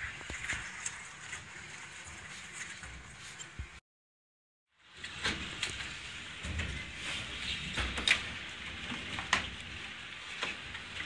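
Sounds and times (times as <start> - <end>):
rain-like hiss: 4.8 - 11.0.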